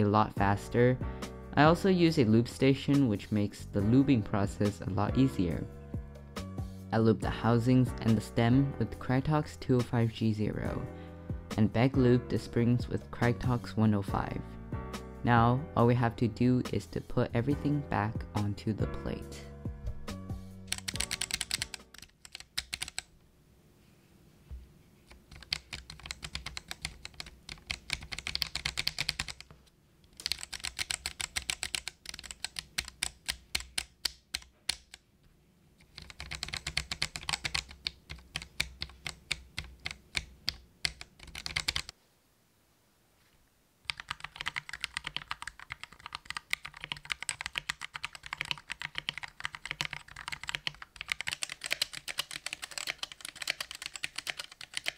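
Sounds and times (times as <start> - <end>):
mechanical keyboard key presses: 20.7 - 23.1, 25.1 - 29.5, 30.1 - 35.0, 35.8 - 41.9, 43.9 - 54.9
typing on mechanical keyboard: 20.7 - 23.1, 25.1 - 29.5, 30.1 - 35.0, 35.8 - 41.9, 43.9 - 54.9.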